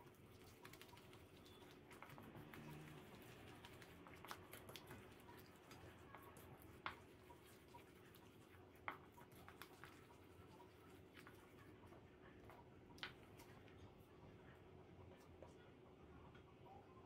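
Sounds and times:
spoon stirring thick batter: 0.0s - 14.3s.

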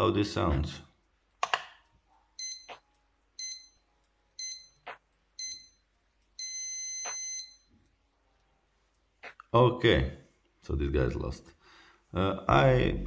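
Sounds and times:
chess clock long beep: 2.4s - 2.8s, 3.4s - 7.8s
chess clock short beeps: 3.4s - 5.8s, 6.4s - 7.7s.

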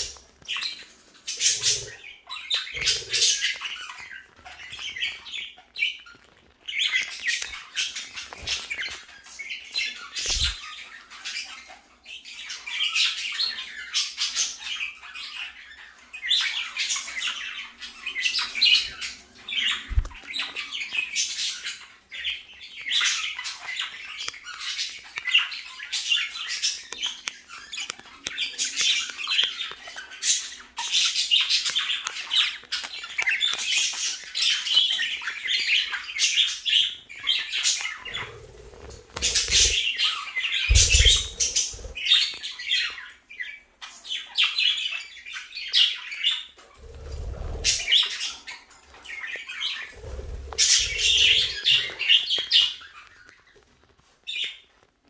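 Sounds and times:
budgerigars chattering: 0.0s - 6.0s, 16.4s - 43.5s, 45.7s - 53.0s.

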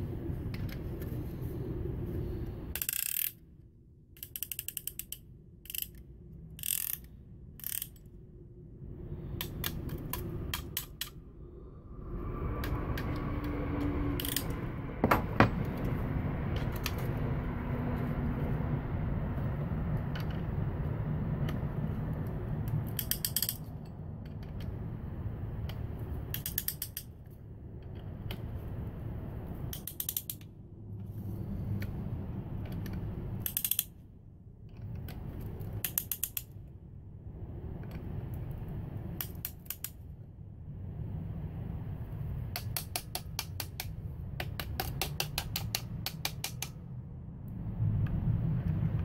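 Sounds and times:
steady low hum: 0.0s - 4.2s, 5.0s - 26.4s
ratchet pawl clicking: 2.8s - 3.4s, 4.2s - 6.0s, 6.6s - 8.1s, 14.2s - 14.6s, 22.8s - 23.7s, 26.3s - 27.1s, 29.7s - 30.5s, 33.4s - 34.0s, 35.8s - 36.6s
sharp knock: 15.0s - 15.6s.

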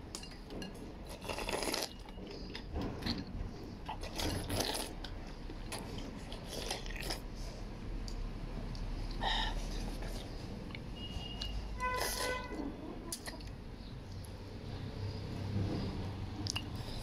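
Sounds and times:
person slurping noodles: 4.0s - 5.0s.

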